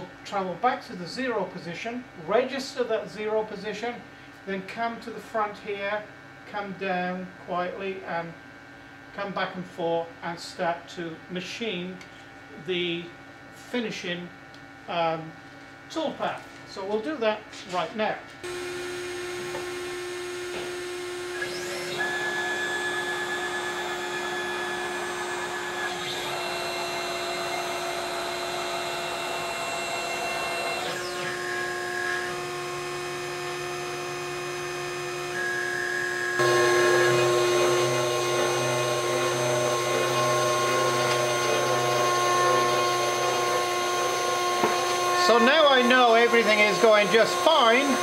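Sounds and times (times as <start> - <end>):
router bit cutting wood: 18.4 - 48.0
router spindle running: 18.4 - 48.0
stepper motors whining: 18.4 - 48.0.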